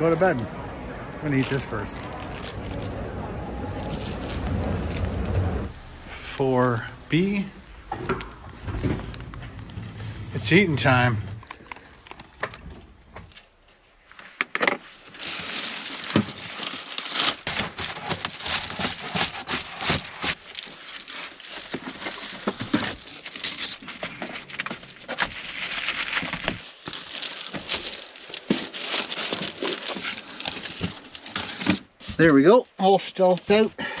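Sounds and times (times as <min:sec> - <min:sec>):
foil panels crinkling: 0:13.7 - 0:32.2.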